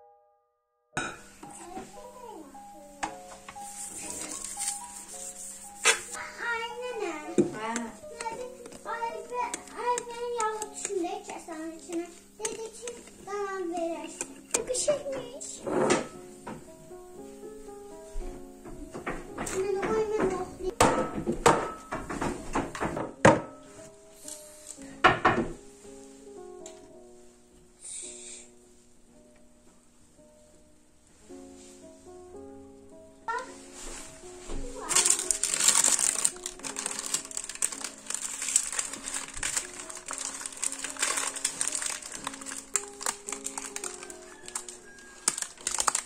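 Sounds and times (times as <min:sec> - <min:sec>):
sustained background music: 0:01.0 - 0:46.0
parchment paper crinkling: 0:03.6 - 0:15.0, 0:33.4 - 0:46.0.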